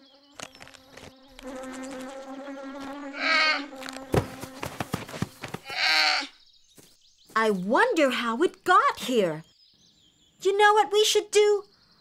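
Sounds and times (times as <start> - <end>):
cartoon bees buzzing: 0.0 - 6.3
high wavering cries: 3.1 - 3.7.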